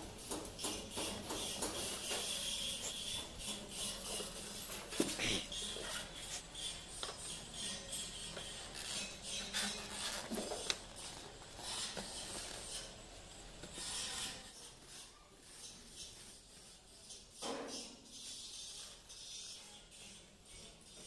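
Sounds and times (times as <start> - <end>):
polystyrene foam rubbing and scraping: 7.4 - 19.8.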